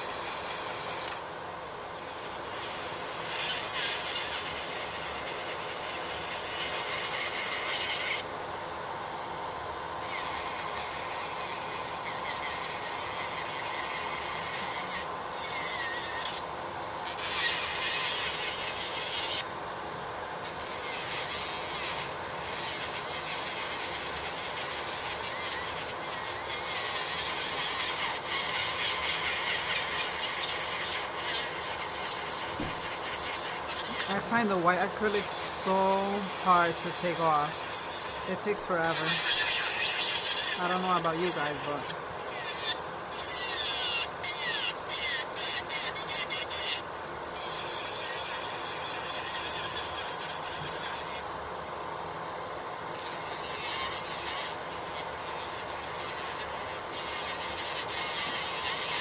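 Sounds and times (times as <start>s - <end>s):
electric nail drill grinding: 0.0s - 1.3s, 2.0s - 8.3s, 10.0s - 19.5s, 20.4s - 51.3s, 52.9s - 59.0s
dust collector fan running: 8.2s - 39.2s.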